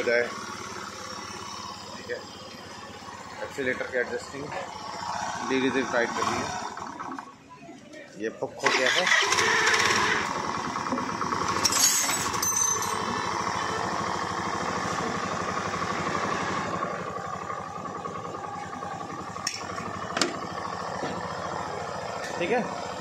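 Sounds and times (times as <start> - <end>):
scooter engine idling: 0.0 - 7.5, 8.6 - 23.0.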